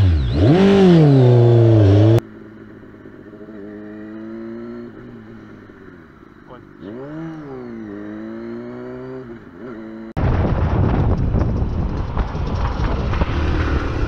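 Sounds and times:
motorcycle engine accelerating: 0.0s - 14.0s
wind rushing over microphone: 10.2s - 14.0s.

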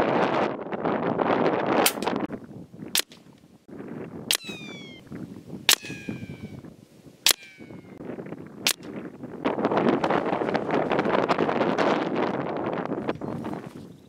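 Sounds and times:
gusty wind on microphone: 0.0s - 14.0s
air rifle shots cracking: 1.8s - 2.2s, 3.0s - 3.3s, 4.3s - 4.9s, 5.7s - 6.4s, 7.2s - 8.0s, 8.6s - 9.0s
short falling whine: 4.3s - 5.1s, 5.7s - 6.7s, 7.3s - 8.0s.

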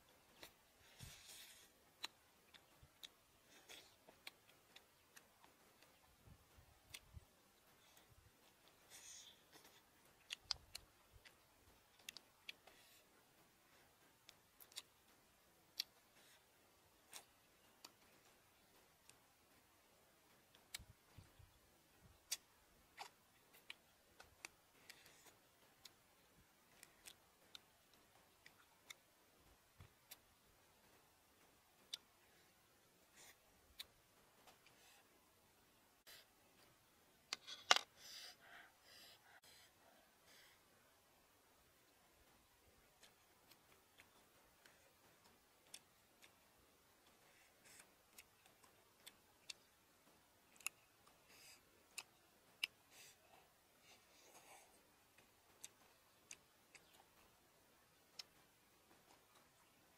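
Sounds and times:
soft crunching: 0.1s - 38.7s, 41.8s - 59.9s
mouth clicks and lip smacks: 22.1s - 32.3s
crunchy chewing: 47.0s - 57.3s.

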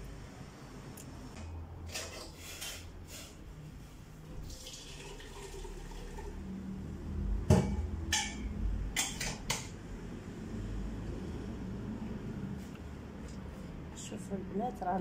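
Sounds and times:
water boiling in a pot: 4.3s - 6.9s
kitchenware knocks: 7.5s - 8.4s.

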